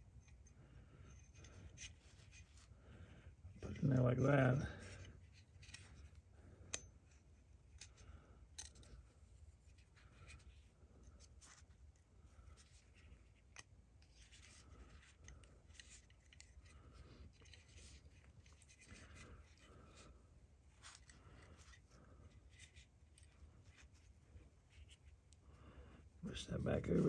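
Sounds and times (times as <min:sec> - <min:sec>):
metal parts clicking and rubbing: 0:05.0 - 0:06.8, 0:07.7 - 0:09.0, 0:12.6 - 0:20.0.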